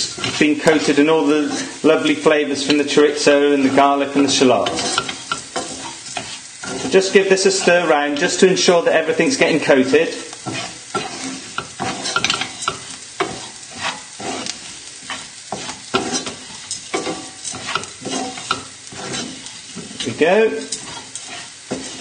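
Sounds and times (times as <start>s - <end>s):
hot oil sizzling: 0.0s - 22.0s
wooden spoon scraping a pan: 0.0s - 22.0s.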